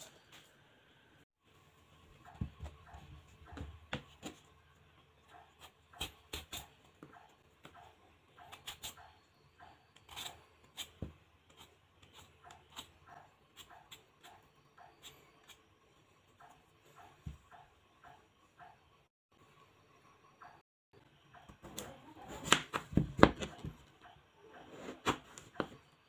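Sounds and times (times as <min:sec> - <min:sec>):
peeler scraping potato skin: 0:08.4 - 0:15.6.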